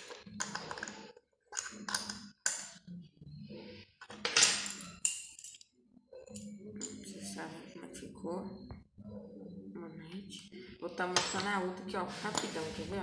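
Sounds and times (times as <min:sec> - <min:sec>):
metal parts clattering on wooden table: 0:00.0 - 0:02.7, 0:04.1 - 0:05.6.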